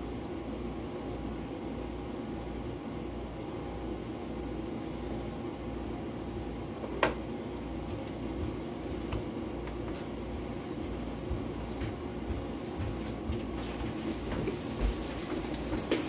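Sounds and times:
low kitchen hum: 0:00.0 - 0:16.0.

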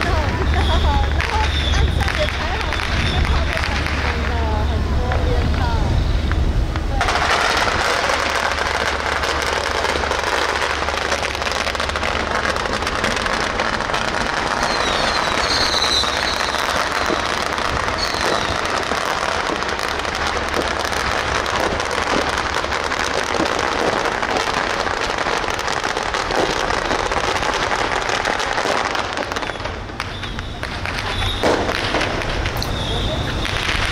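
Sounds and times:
firecrackers crackling: 0:00.0 - 0:33.9.

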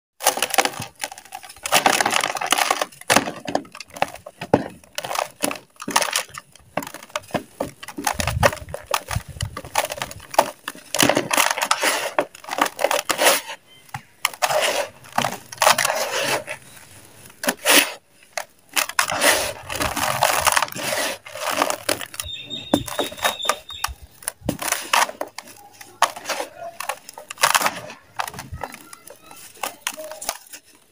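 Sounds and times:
dry mud crumbling and crunching: 0:00.2 - 0:30.9
hands sifting dry dirt: 0:11.3 - 0:13.6, 0:14.3 - 0:18.0, 0:18.8 - 0:30.9.

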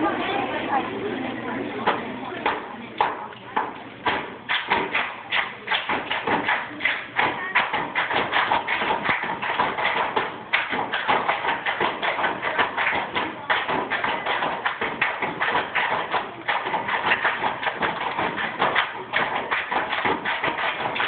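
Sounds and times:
hand claps: 0:01.9 - 0:21.0
foot stomps on wooden stage: 0:07.2 - 0:21.0.

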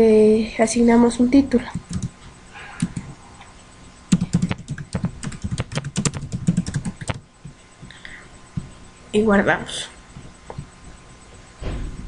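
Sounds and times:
computer keyboard typing: 0:01.6 - 0:02.2, 0:02.8 - 0:03.2, 0:04.1 - 0:07.3.

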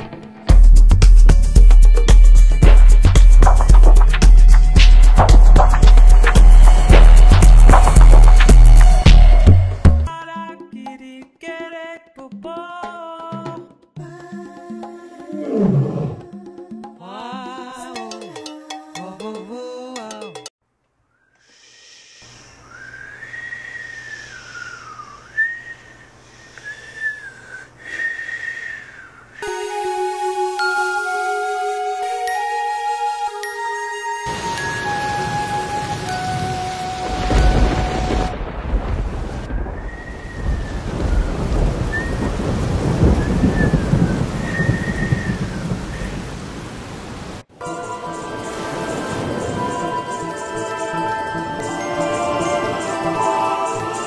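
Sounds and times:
high gliding whistling tone: 0:21.2 - 0:38.3, 0:39.6 - 0:42.3, 0:47.6 - 0:54.0
rain-like hiss: 0:21.4 - 0:22.8, 0:34.3 - 0:50.6
steady hiss: 0:21.4 - 0:28.2
chiming music: 0:29.4 - 0:38.1, 0:47.6 - 0:54.0.

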